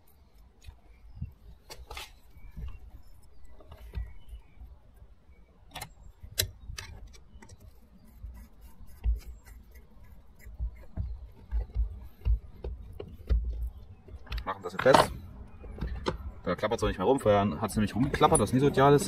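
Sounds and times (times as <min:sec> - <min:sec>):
low handling bumps: 0:08.9 - 0:19.0.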